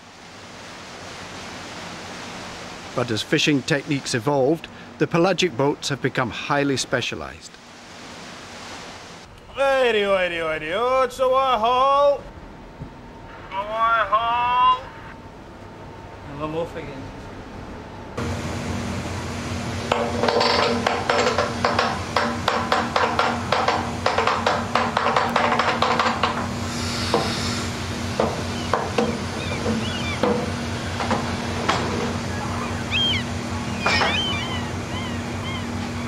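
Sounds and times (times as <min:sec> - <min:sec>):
steady low hum: 0:00.0 - 0:36.0
seabirds calling: 0:18.2 - 0:36.0.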